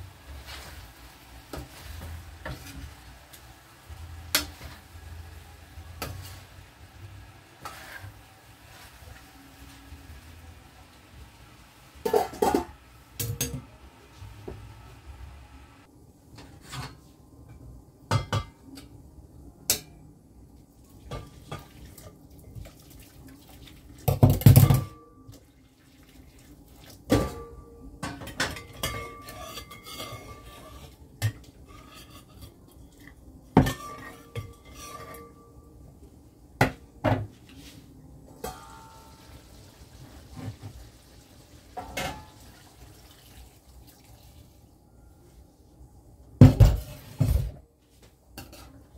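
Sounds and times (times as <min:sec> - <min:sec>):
spoon scraping in frying pan: 0:00.3 - 0:10.2, 0:28.6 - 0:35.5, 0:48.4 - 0:48.9
pot lids and kettle clanking: 0:12.0 - 0:13.7
water pouring into hot pot: 0:39.2 - 0:44.6.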